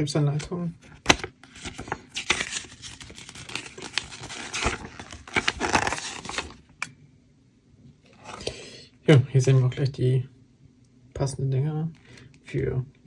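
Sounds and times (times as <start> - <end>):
paper rustling and crinkling: 0.8 - 6.6.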